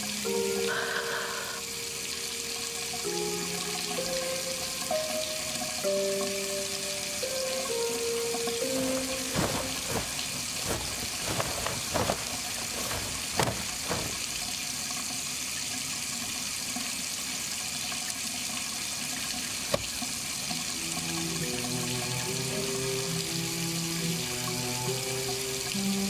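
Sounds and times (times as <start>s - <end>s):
tap water running into sink: 3.0s - 26.0s
hands splashing: 8.6s - 14.5s
sharp knocks: 8.7s - 14.4s.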